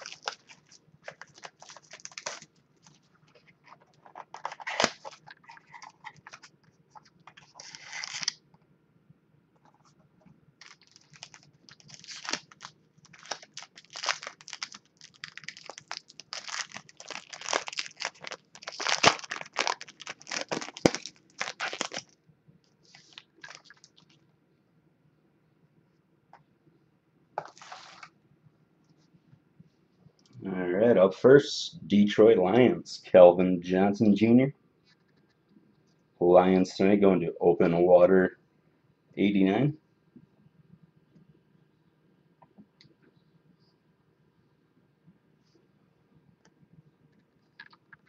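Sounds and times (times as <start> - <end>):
foil wrapper tearing and crinkling: 0.0 - 3.0, 3.6 - 6.4, 7.4 - 8.4, 10.6 - 22.2, 22.9 - 24.1.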